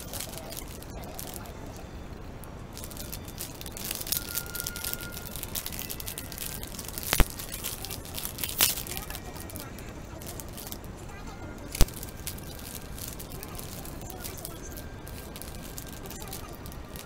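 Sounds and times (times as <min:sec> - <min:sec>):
plastic wrapper crinkling: 0:00.0 - 0:17.0.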